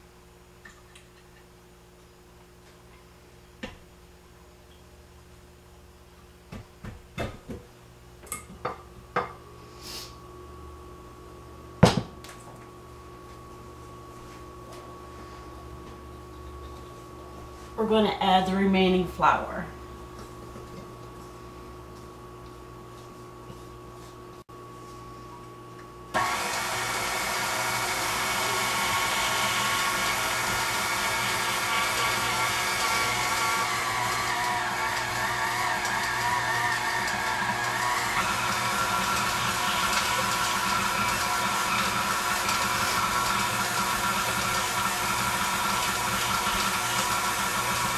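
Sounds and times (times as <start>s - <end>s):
stand mixer motor whine: 26.1s - 47.9s.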